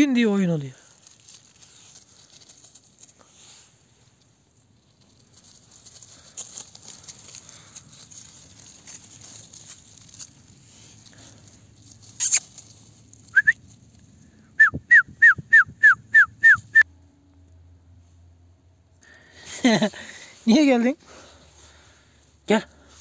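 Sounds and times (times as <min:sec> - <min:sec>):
dry leaves rustling: 0:00.0 - 0:14.5, 0:19.1 - 0:23.0.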